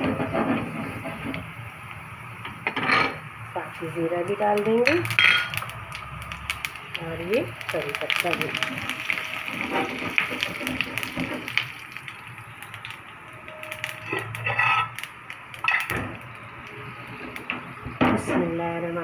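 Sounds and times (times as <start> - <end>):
spices sizzling in hot oil: 0.0 - 18.2
sharp crackling pops: 4.2 - 17.9.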